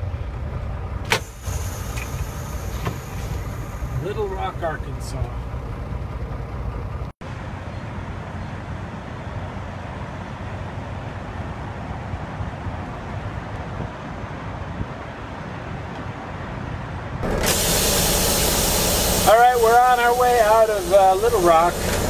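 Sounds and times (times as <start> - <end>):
diesel trucks and traffic rumbling: 0.0 - 22.0.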